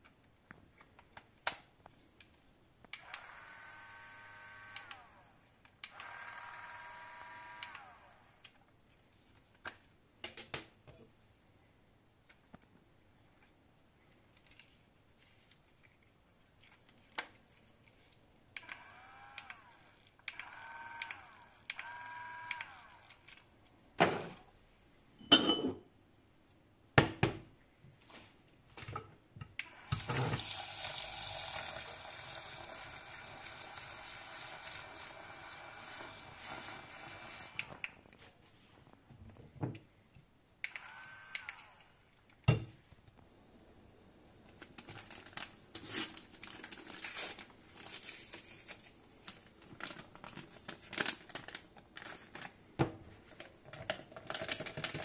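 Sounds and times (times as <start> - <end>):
small motor whining: 3.0 - 5.3, 5.9 - 8.4, 18.6 - 23.1, 40.8 - 41.8
whisk whirring in milk: 30.5 - 37.8.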